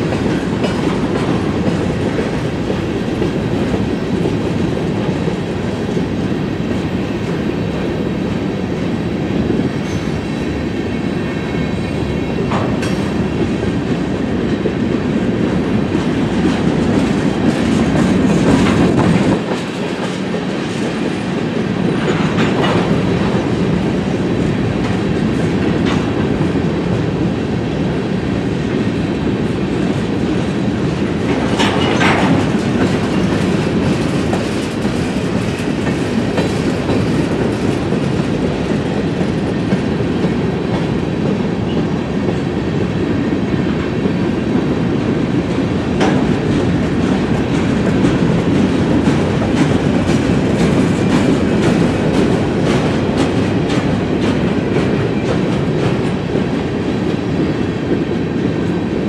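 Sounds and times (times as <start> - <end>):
wheels clacking over rail joints: 0.0 - 6.9, 12.0 - 27.0, 29.8 - 42.4, 43.2 - 58.5
train wheels rumbling on rails: 0.0 - 59.0.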